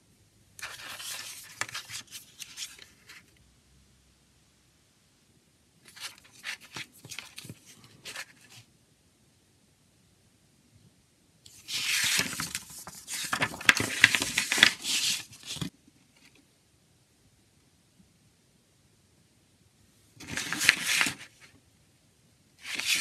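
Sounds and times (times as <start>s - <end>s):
glossy paper pages rustling: 0.6s - 3.3s, 5.9s - 8.6s, 11.5s - 16.4s, 20.2s - 21.5s, 22.6s - 23.0s.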